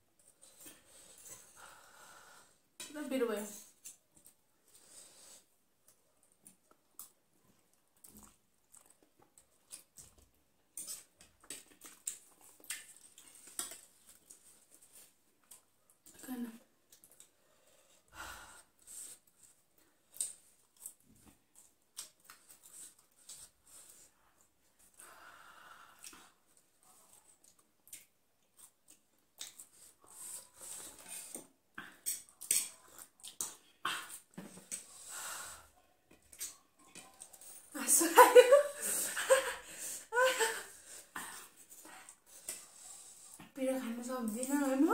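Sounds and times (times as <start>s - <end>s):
breathing: 0.5s - 2.7s, 4.7s - 5.5s, 17.3s - 19.3s, 24.9s - 26.4s, 34.8s - 35.8s, 38.8s - 43.5s
people chewing: 3.7s - 16.2s, 16.8s - 37.7s, 38.5s - 43.6s.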